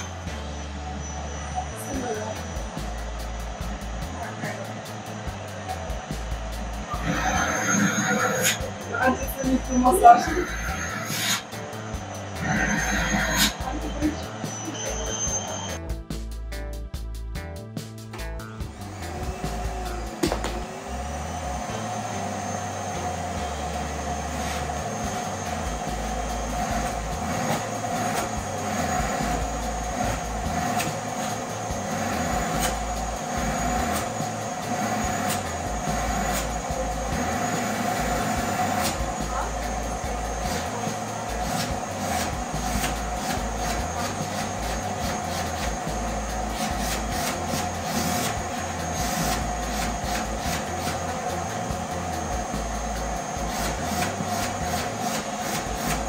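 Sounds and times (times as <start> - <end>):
vacuum cleaner running: 0.0 - 15.8, 18.5 - 56.0
suction rushes on fabric: 18.8 - 56.0.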